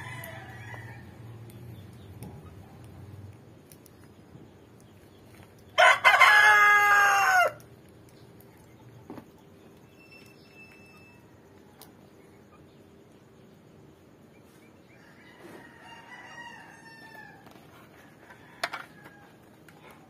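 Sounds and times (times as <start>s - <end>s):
rooster crowing: 0.0s - 1.2s, 5.8s - 7.6s, 15.0s - 20.0s.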